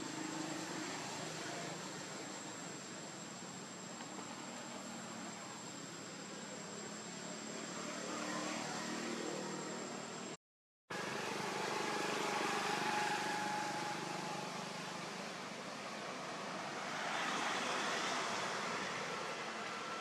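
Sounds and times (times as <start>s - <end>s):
outdoor background hiss: 0.0s - 20.0s
faint high whine: 7.8s - 20.0s.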